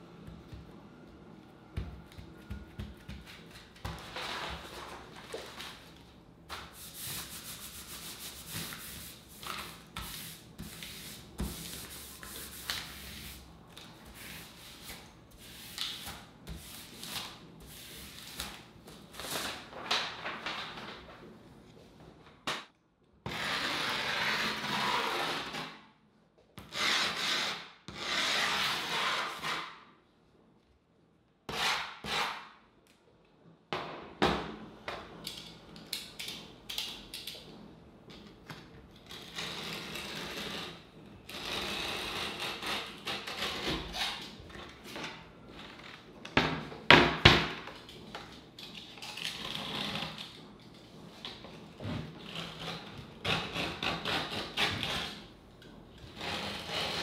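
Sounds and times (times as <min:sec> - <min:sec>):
griptape rubbing strokes: 0:06.5 - 0:18.4.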